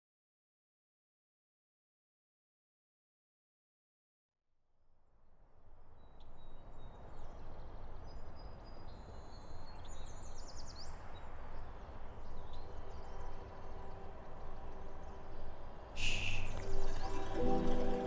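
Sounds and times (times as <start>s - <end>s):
outdoor background rush: 5.2s - 18.0s
birds chirping: 6.2s - 18.0s.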